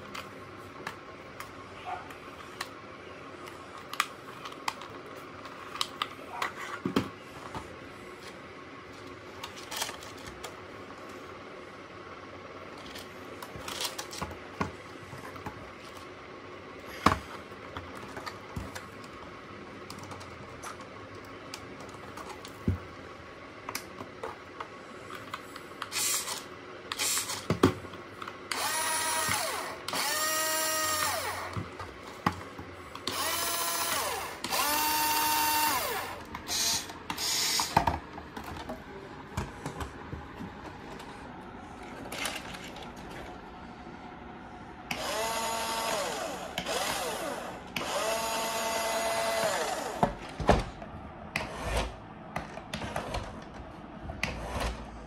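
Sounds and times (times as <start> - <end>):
clicks and knocks handling plastic toy: 3.4 - 10.6, 41.8 - 43.4
toy car motor whining: 25.9 - 27.5, 28.5 - 31.6, 33.0 - 37.8.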